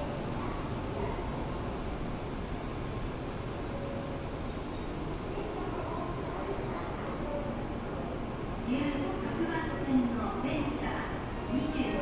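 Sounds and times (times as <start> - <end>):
electronic departure bell trill: 0.0 - 7.6
platform and train hum: 0.0 - 12.0.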